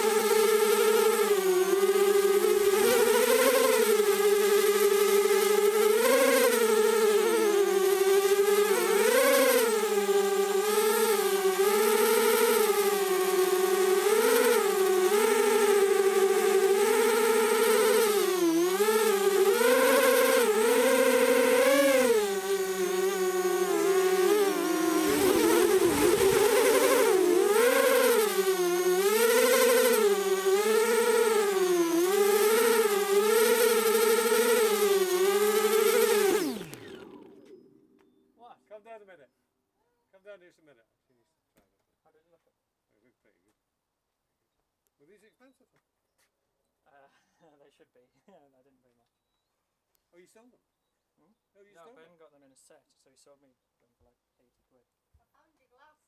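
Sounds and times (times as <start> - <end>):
drone motors and propellers whining: 0.0 - 38.2.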